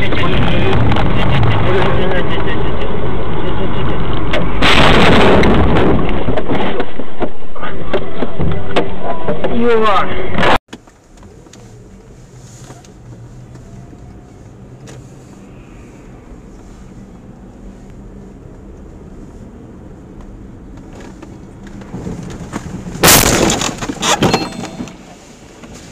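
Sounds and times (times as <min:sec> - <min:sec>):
car road and engine noise: 0:00.0 - 0:25.9
loud crash impact: 0:04.6 - 0:06.3, 0:23.0 - 0:25.0.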